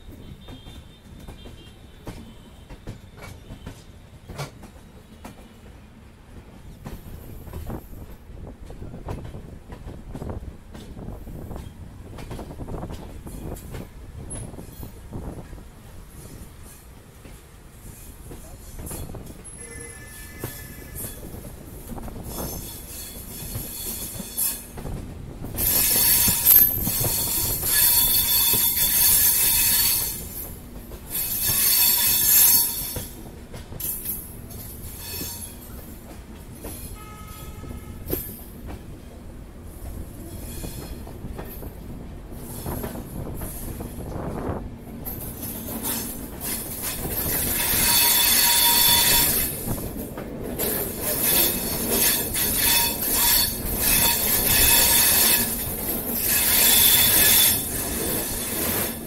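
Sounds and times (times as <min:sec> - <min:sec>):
train rumbling on rails: 0:00.0 - 0:59.0
metallic wheel squeal: 0:19.4 - 0:21.4, 0:25.6 - 0:30.3, 0:31.1 - 0:33.2, 0:45.8 - 0:49.6, 0:51.1 - 0:58.6.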